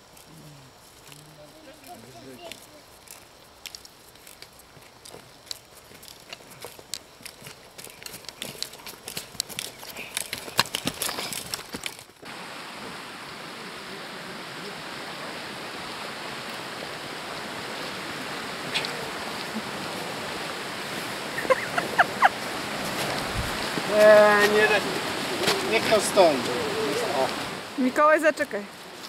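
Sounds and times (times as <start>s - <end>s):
footsteps on stony path: 0.8s - 12.3s, 20.4s - 29.0s
steady water rushing: 0.9s - 29.0s
trekking pole tips clicking: 1.8s - 12.1s.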